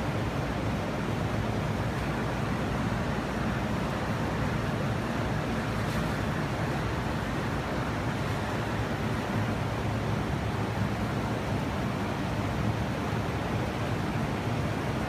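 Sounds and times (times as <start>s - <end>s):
air conditioning unit running: 0.0s - 15.0s.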